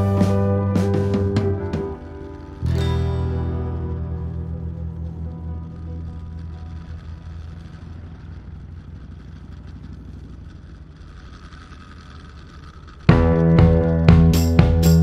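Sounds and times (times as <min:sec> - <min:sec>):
loud music with drums and guitar: 0:00.0 - 0:03.6, 0:13.1 - 0:15.0
motorcycle engine running: 0:00.0 - 0:15.0.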